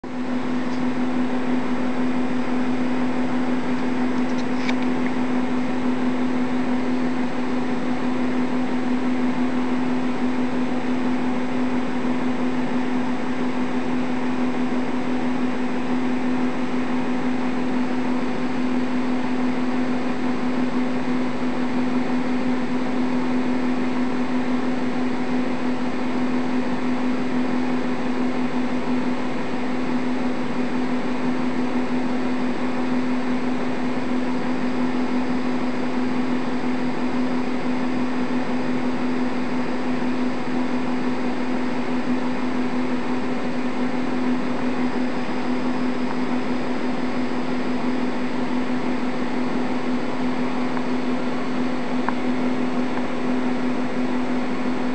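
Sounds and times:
faint high whine: 0.0s - 54.9s
small click: 0.7s - 0.9s, 3.7s - 5.2s.

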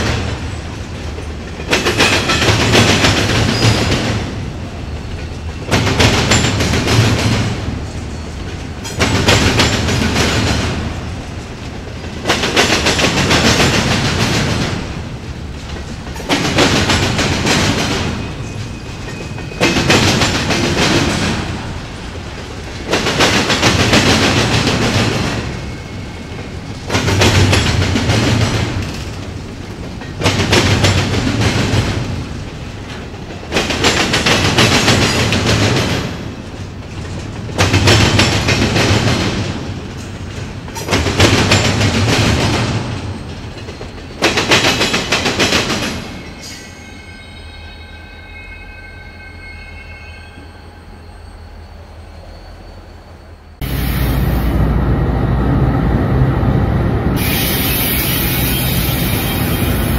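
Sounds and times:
train wheels clattering over crossing: 0.0s - 46.7s
train rumble: 0.0s - 59.9s.

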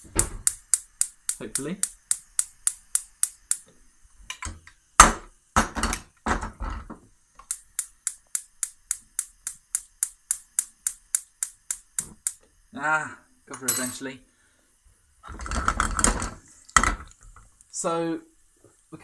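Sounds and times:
gas hob igniter clicking: 0.0s - 5.3s, 7.3s - 12.5s
knocks and rattles: 15.3s - 17.1s.

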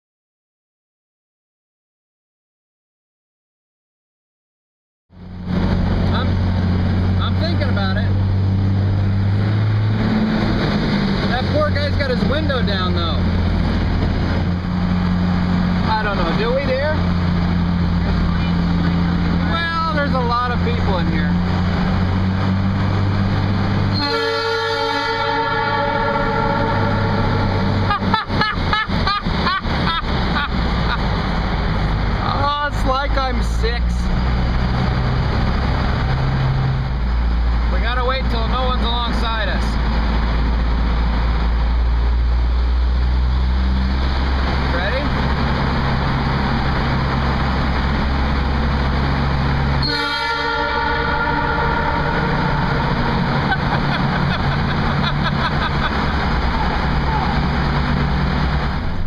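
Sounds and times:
car road noise in a tunnel: 5.1s - 59.0s
air horn chord: 23.9s - 27.8s, 49.8s - 53.1s.

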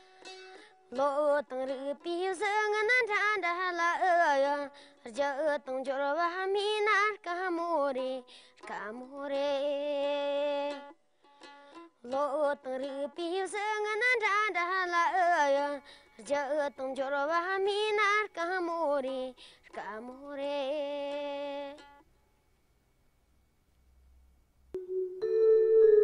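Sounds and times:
person singing solo folk song: 0.9s - 11.0s, 11.6s - 21.9s.

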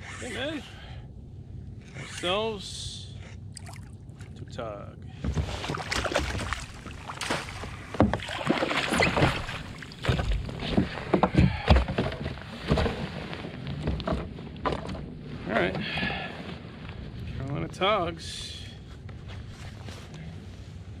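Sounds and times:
water splashing and sloshing: 3.3s - 4.4s, 5.2s - 16.2s
net and gear knocking on hull: 5.2s - 13.1s.

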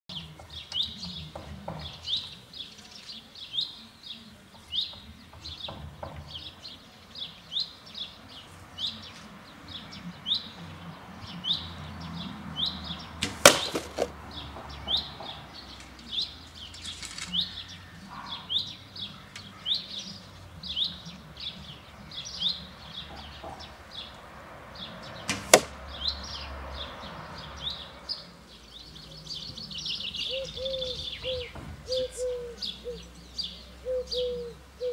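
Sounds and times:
bird chirping: 0.1s - 34.9s
arrows striking targets: 13.2s - 14.2s, 25.2s - 25.8s.

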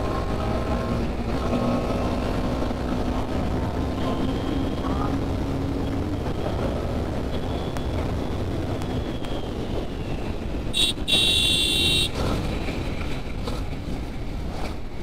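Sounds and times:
wind: 0.0s - 15.0s
vehicle horn beeping: 10.8s - 12.2s.

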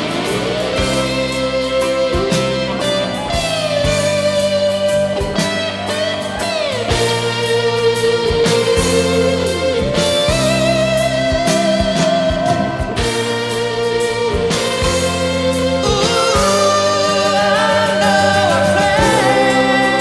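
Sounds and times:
instrumental guitar music: 0.0s - 20.0s.

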